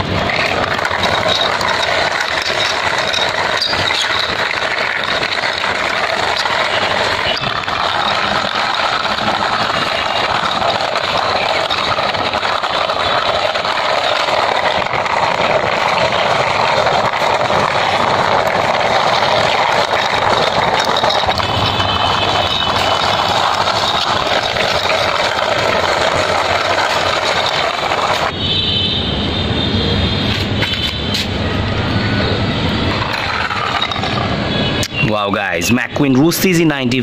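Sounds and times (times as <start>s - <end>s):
toy car wheels rolling on concrete: 0.0s - 28.9s, 29.8s - 37.0s.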